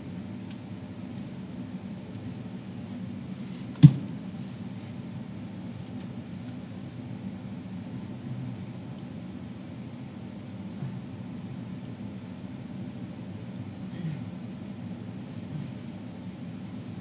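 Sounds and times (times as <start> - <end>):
steady low hum: 0.0 - 17.0
sharp knock: 3.8 - 4.1.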